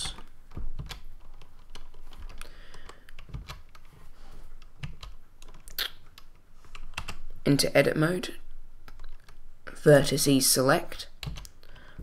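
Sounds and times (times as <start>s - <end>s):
computer keyboard key clicks: 11.2s - 11.6s.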